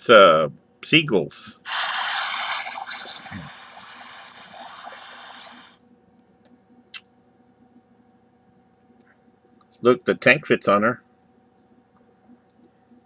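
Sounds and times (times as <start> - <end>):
electronic water rushing effect: 1.7 - 5.8
small click: 6.4 - 7.1.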